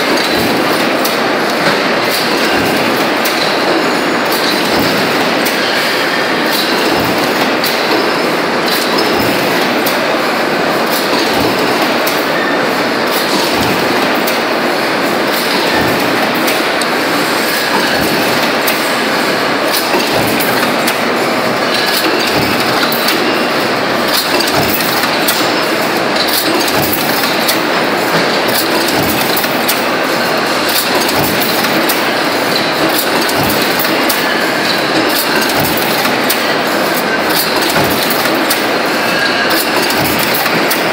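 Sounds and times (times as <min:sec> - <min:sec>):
mechanical clatter: 0:00.0 - 0:40.9
stamping press thuds: 0:17.7 - 0:18.8, 0:19.7 - 0:23.4, 0:24.0 - 0:25.6, 0:30.7 - 0:34.1, 0:34.8 - 0:36.4.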